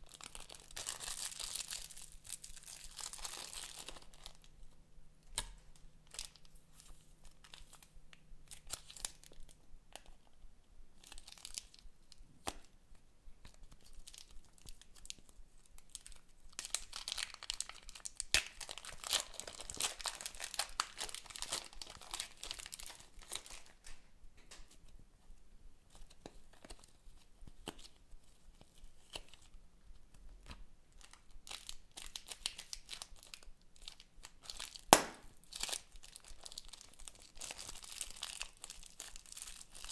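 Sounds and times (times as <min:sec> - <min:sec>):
plastic bags crinkling and tearing: 0:00.0 - 0:04.5, 0:05.3 - 0:07.9, 0:08.5 - 0:09.6, 0:11.0 - 0:11.8, 0:13.6 - 0:15.2, 0:15.8 - 0:24.0, 0:31.0 - 0:39.9.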